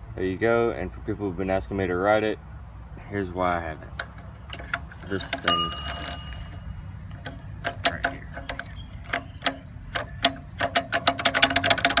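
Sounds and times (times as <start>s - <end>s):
clutch sprocket clicking: 4.0s - 12.0s.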